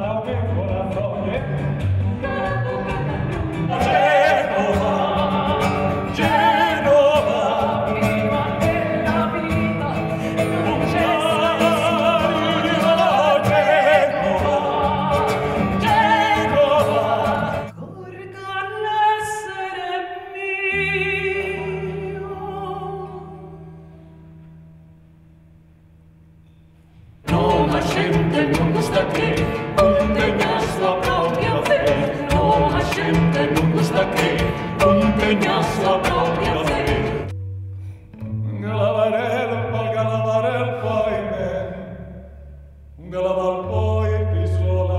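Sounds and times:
woman singing with vibrato: 2.1s - 23.8s, 27.3s - 37.3s.

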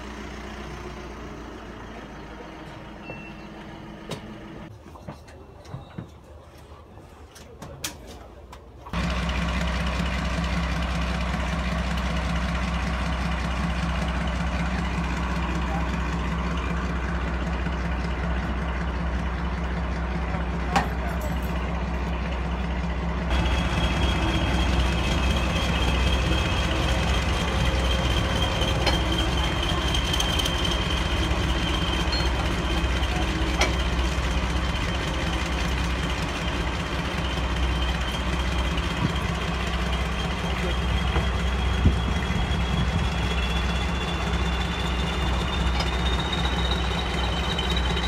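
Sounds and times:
diesel locomotive engines idling: 0.0s - 48.0s.

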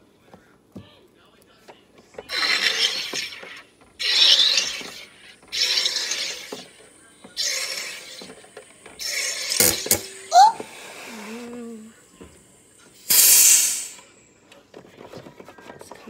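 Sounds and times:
hissing bursts of gas: 2.3s - 11.5s, 13.0s - 14.2s.

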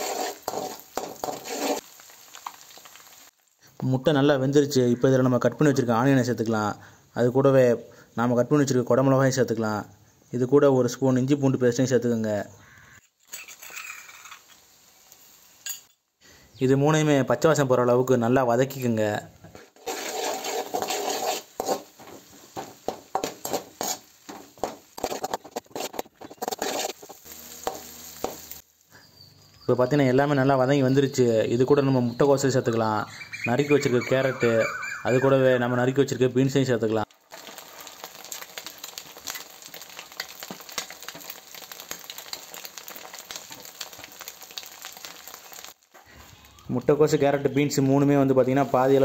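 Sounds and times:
spatula scraping metal pan: 0.0s - 1.8s, 19.7s - 28.6s
vegetables sizzling in hot oil: 0.0s - 4.1s, 12.6s - 15.8s, 19.8s - 29.7s, 37.0s - 49.0s
frying hiss: 0.0s - 34.4s, 35.2s - 49.0s.

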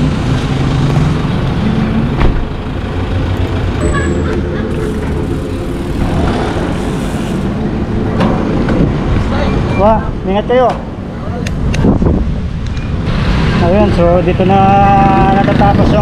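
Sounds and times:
vehicle engine running: 0.0s - 9.3s
road traffic noise: 0.0s - 16.0s.

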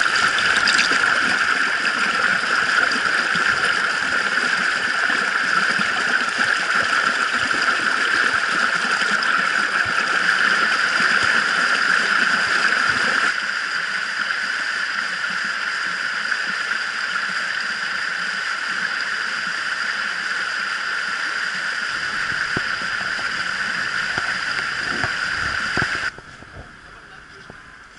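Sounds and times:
stream rushing over rocks: 0.0s - 14.2s, 16.6s - 26.2s
low rumble: 21.9s - 27.9s.

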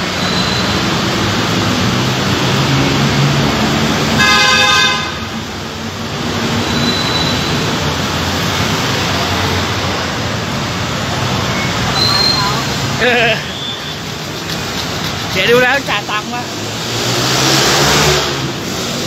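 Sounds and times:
city street traffic: 0.0s - 19.0s
vehicle horn toot: 4.2s - 5.2s.

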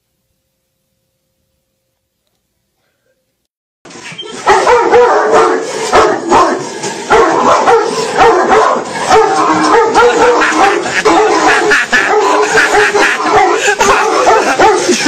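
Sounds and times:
dogs barking and yipping: 3.9s - 15.0s.

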